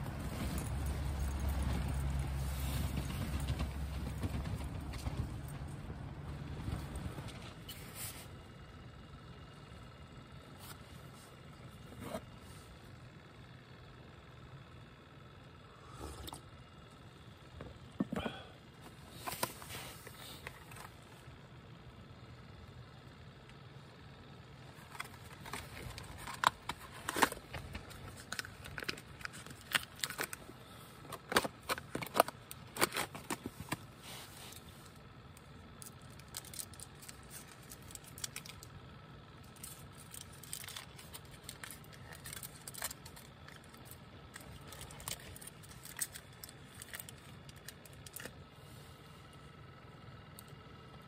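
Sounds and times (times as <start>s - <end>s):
packaging rustling: 24.7s - 30.5s
packaging clicks tears and crinkles: 24.8s - 30.5s, 31.1s - 33.7s, 35.8s - 38.7s, 39.6s - 48.3s.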